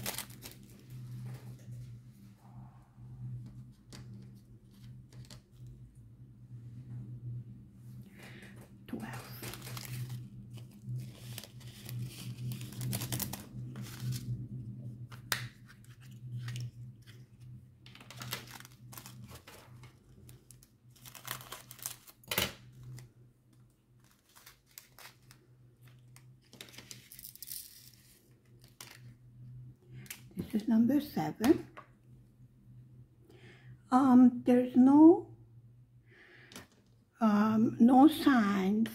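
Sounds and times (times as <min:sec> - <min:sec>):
plastic bags crinkling: 0:00.0 - 0:01.1, 0:09.0 - 0:14.3, 0:17.9 - 0:23.0, 0:23.9 - 0:25.4.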